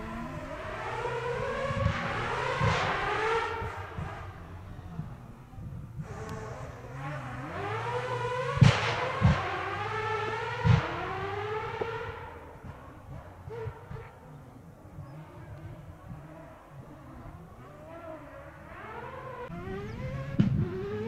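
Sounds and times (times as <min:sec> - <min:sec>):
rally car engine revving: 0:00.0 - 0:21.0
sharp bangs: 0:08.5 - 0:10.0.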